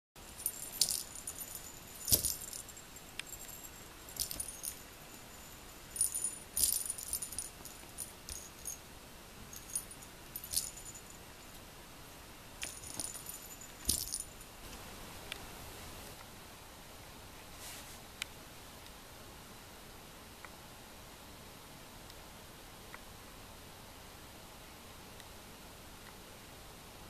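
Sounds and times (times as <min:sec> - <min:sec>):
small metallic jingling: 0:00.2 - 0:08.9, 0:09.5 - 0:11.6, 0:12.6 - 0:14.5.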